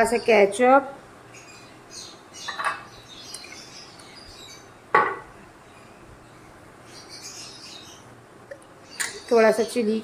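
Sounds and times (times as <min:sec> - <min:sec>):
bottle knocking on counter: 0:04.9 - 0:05.3.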